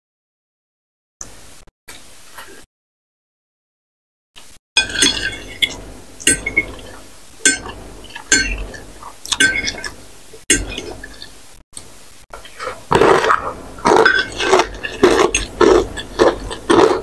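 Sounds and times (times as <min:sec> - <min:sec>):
cutlery scraping ceramic plate: 0:12.6 - 0:16.4.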